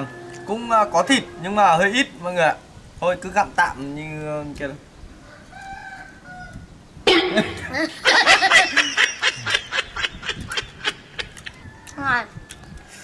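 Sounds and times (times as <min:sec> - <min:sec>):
man laughing: 0:07.1 - 0:11.6.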